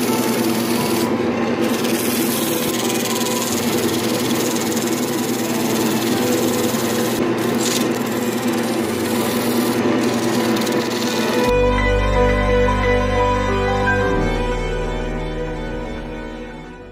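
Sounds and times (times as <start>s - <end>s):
wood lathe motor hum: 0.0s - 11.5s
sandpaper rubbing hiss: 1.7s - 11.4s.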